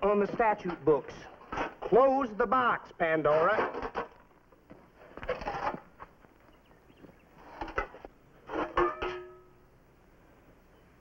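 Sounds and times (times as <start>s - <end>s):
metal pots and pans clattering: 7.6s - 9.5s.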